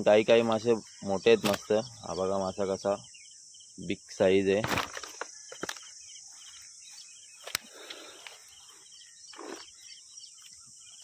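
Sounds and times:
bird chirping: 0:00.0 - 0:11.0
insect drone: 0:00.0 - 0:11.0
sharp clicks: 0:07.4 - 0:08.4.

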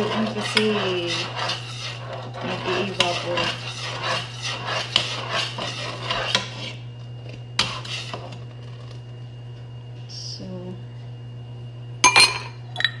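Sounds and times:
metal spoon scraping a pot: 0:00.0 - 0:06.9, 0:07.6 - 0:08.5
spoon clinking against pot: 0:12.0 - 0:13.0.

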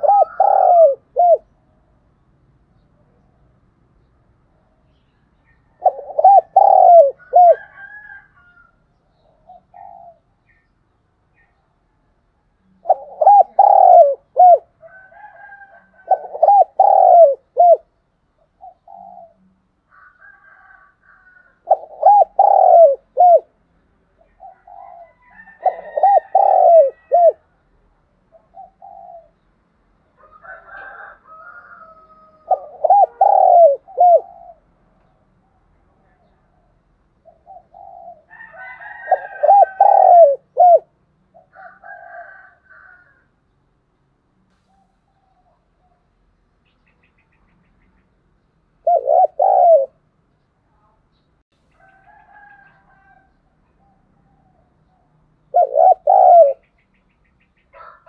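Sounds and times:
dove cooing: 0:00.0 - 0:01.6, 0:05.7 - 0:08.6, 0:09.2 - 0:10.3, 0:12.6 - 0:23.6, 0:24.2 - 0:27.4, 0:28.3 - 0:29.4, 0:30.2 - 0:34.9, 0:36.0 - 0:43.2, 0:48.8 - 0:50.0, 0:51.9 - 0:56.7, 0:57.7 - 0:58.0.

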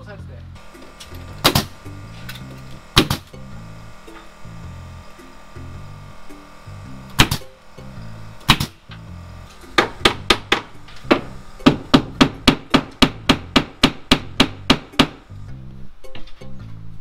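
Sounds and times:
hammer striking siding: 0:00.6 - 0:04.4, 0:07.1 - 0:07.6, 0:08.4 - 0:15.3.

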